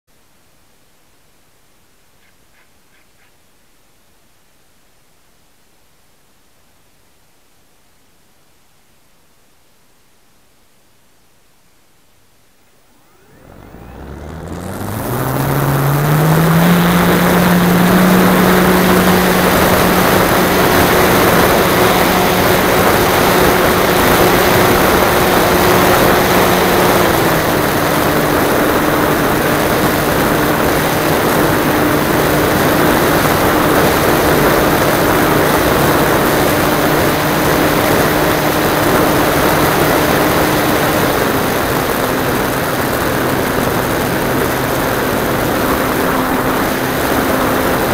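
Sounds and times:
model aeroplane motor drone: 0:12.9 - 0:47.9
wind noise: 0:13.1 - 0:47.9.

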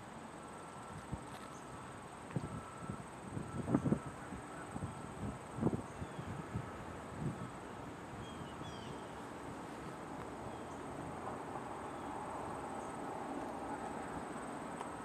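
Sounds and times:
distant freight train rumble: 0:06.4 - 0:15.0.

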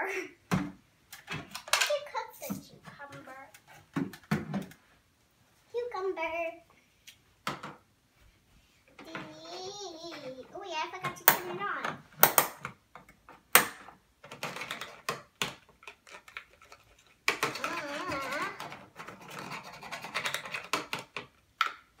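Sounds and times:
plastic toy clicks and taps: 0:11.1 - 0:11.6, 0:12.2 - 0:16.5.

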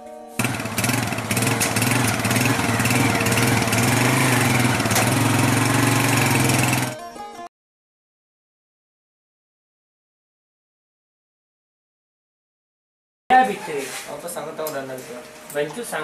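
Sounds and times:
motorcycle engine idling: 0:00.4 - 0:07.0.

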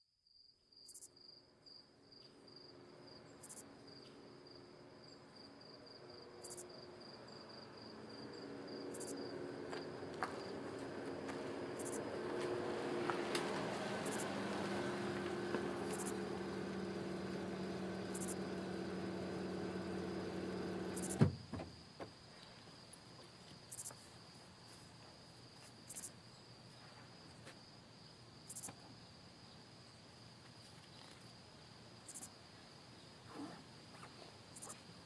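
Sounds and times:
high-pitched insect calls: 0:00.8 - 0:01.2, 0:03.2 - 0:10.8, 0:11.8 - 0:12.2, 0:14.0 - 0:14.4, 0:15.8 - 0:21.2, 0:32.0 - 0:32.4, 0:33.0 - 0:34.9
sharp thump: 0:21.0 - 0:21.8.

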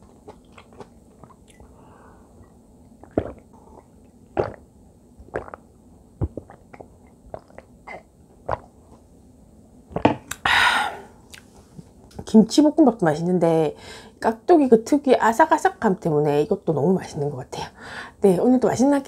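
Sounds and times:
person gulping water: 0:00.0 - 0:01.7, 0:02.4 - 0:08.8, 0:09.9 - 0:10.5
loud breathy exhale: 0:10.4 - 0:11.2.

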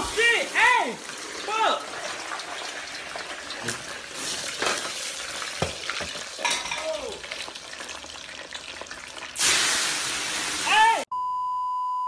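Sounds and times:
flames crackling and popping: 0:00.0 - 0:10.7.

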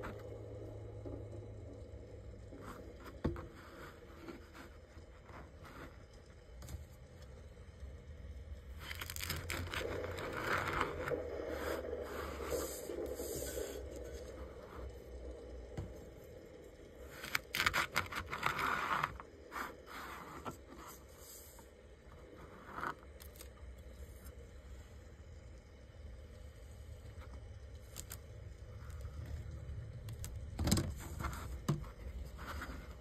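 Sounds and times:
sharp crackles: 0:08.8 - 0:11.2.

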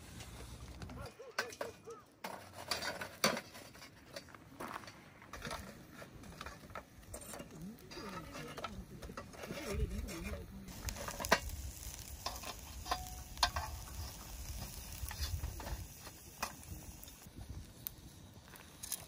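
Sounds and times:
light sizzle: 0:02.3 - 0:19.0
utensils and cookware clicking: 0:12.2 - 0:14.0.

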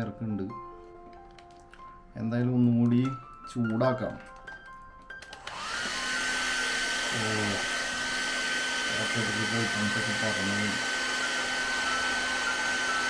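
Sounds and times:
hot-air blower hissing: 0:05.3 - 0:13.0.

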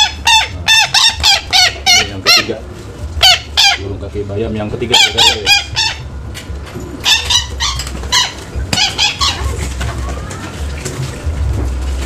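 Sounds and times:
bird yapping calls: 0:00.0 - 0:02.6, 0:06.9 - 0:09.8
low steady rumble: 0:00.0 - 0:12.0.

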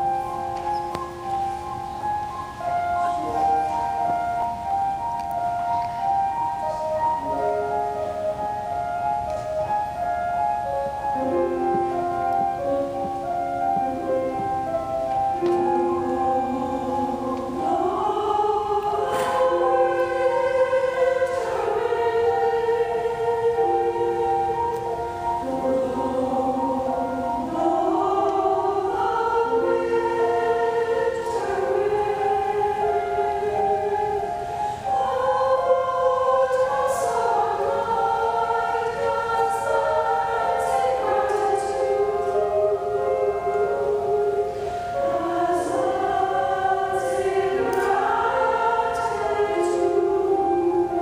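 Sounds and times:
mixed choir singing: 0:00.0 - 0:51.0
slow piano notes: 0:00.0 - 0:51.0.

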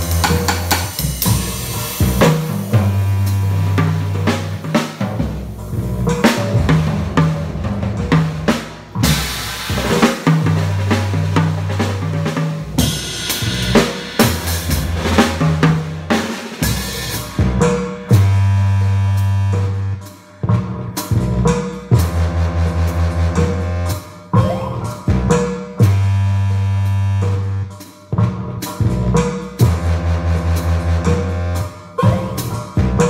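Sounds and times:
drum kit playing: 0:00.0 - 0:26.2, 0:26.9 - 0:33.0
looping synth bass line: 0:14.4 - 0:16.0.

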